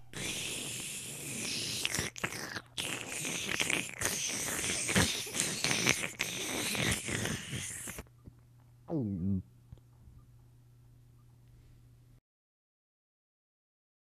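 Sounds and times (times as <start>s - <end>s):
crackling munching noises: 0.0s - 8.1s.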